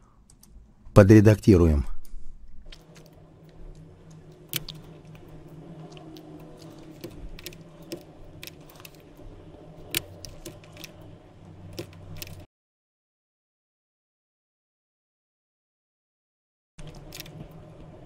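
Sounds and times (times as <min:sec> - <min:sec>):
low steady hum: 0:00.0 - 0:12.5, 0:16.8 - 0:18.0.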